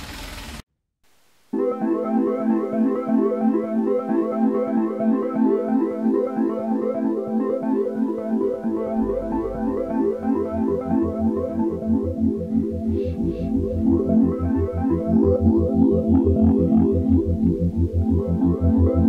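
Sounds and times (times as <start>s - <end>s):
electronic synthesizer music: 1.5s - 19.0s
deep bass: 8.8s - 19.0s.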